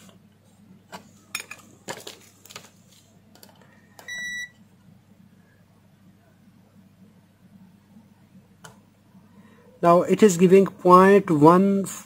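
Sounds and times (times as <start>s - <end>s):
multimeter beep: 3.9s - 4.6s.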